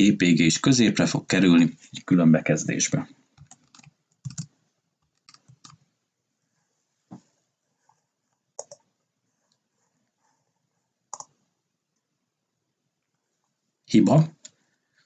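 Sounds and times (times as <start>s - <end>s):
keyboard and mouse clicks: 3.4s - 5.8s, 8.6s - 8.9s, 11.1s - 11.4s.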